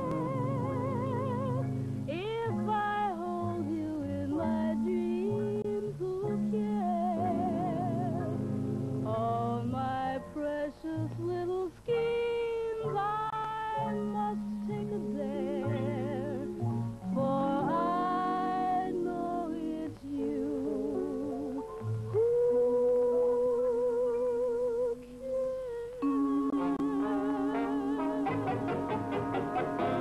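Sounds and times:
woman singing jazz ballad: 0.0 - 30.0
big band accompaniment: 26.6 - 30.0.

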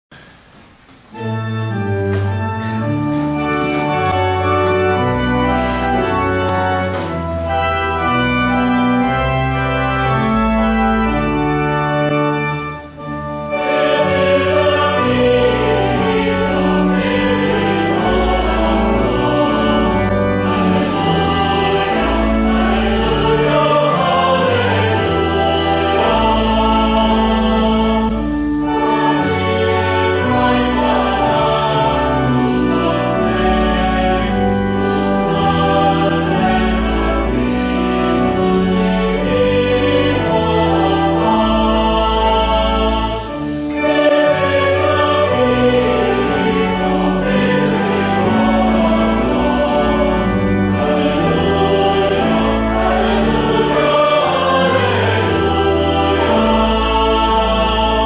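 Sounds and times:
church pipe organ chords: 1.0 - 58.0
choir singing: 2.7 - 58.0.

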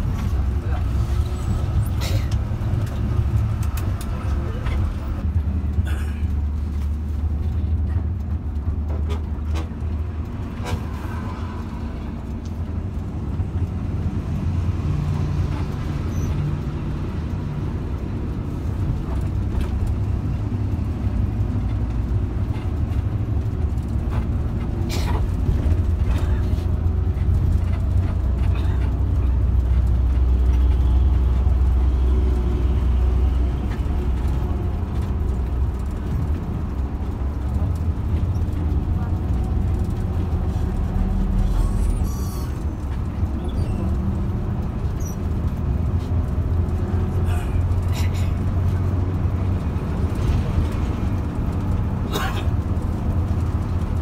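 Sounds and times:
bus engine and road rumble: 0.0 - 54.0.

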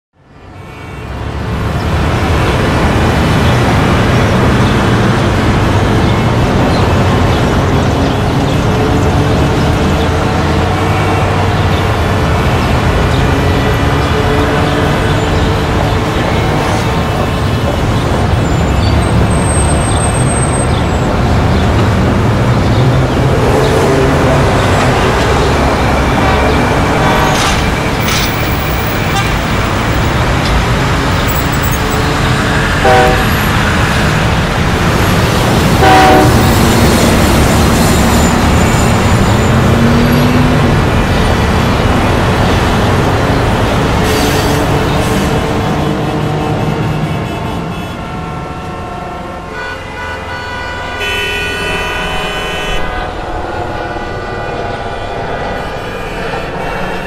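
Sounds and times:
street traffic noise: 0.2 - 57.0
vehicle horn honking: 32.8 - 33.6, 35.8 - 36.7, 46.0 - 52.9.

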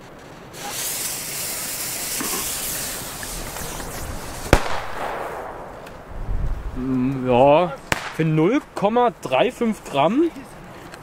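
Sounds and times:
firecracker fuse hissing: 0.0 - 6.7
firecracker bang: 0.6 - 6.6, 7.8 - 8.4.

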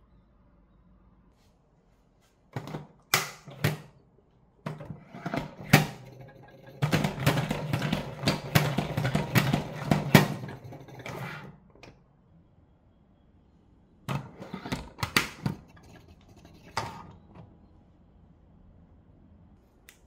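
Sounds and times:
spinning basket whir: 5.2 - 11.6.

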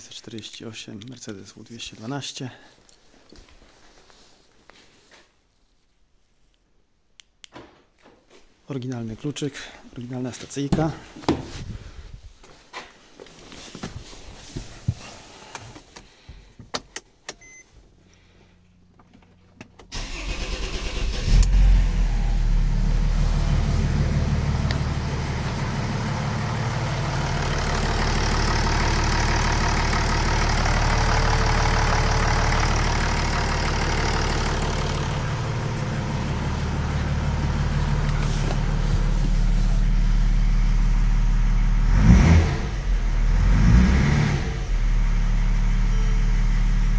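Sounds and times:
short beep: 17.4 - 17.7
diesel engine idling: 19.9 - 42.0.

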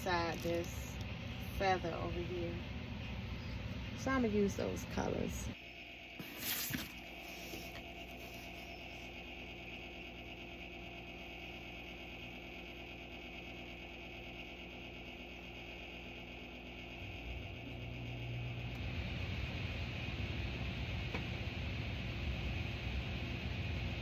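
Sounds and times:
motor hum: 0.0 - 24.0.

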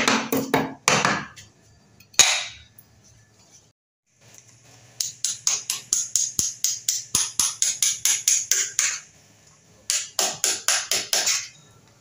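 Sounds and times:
hammer tapping a chisel: 9.9 - 11.5.

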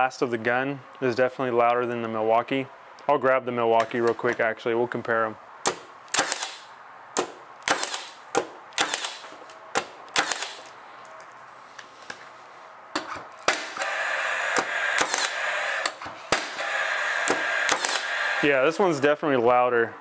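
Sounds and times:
nail gun firing: 5.6 - 10.7, 13.0 - 18.4
steady whirr: 13.4 - 18.9.

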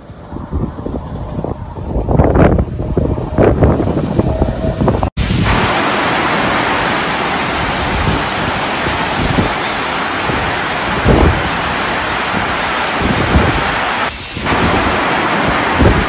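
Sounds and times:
wind buffeting microphone: 0.0 - 16.0
hail and rain pouring: 5.2 - 16.0.

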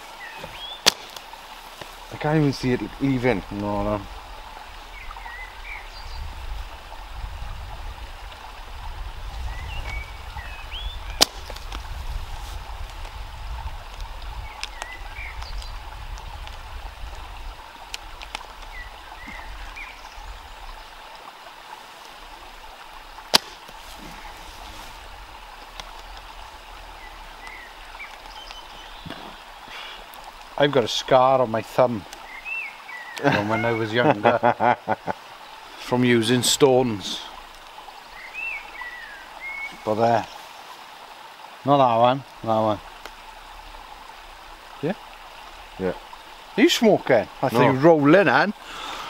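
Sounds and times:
running water: 0.0 - 49.0
slingshot shot cracks: 0.8 - 1.2, 11.2 - 11.6, 23.3 - 23.6.

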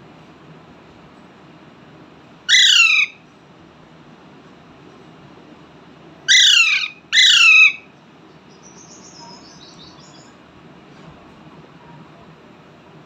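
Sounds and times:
parakeet calls falling in pitch: 2.5 - 3.1
faint high chirps: 8.5 - 10.4.

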